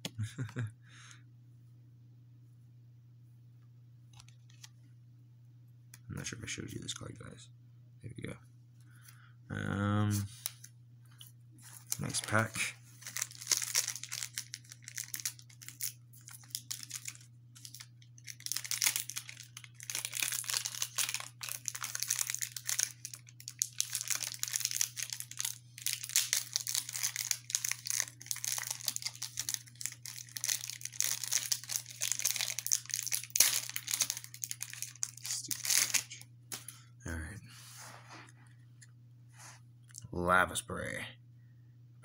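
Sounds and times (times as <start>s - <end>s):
steady low hum: 0.0s - 42.0s
wrapper crinkling and tearing: 11.6s - 36.7s.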